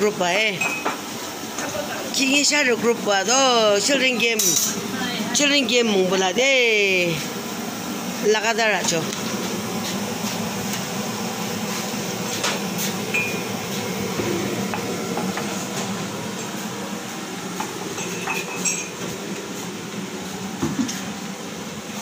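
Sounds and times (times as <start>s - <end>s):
steady background noise: 0.0s - 22.0s
dishes and utensils clinking: 17.9s - 19.1s.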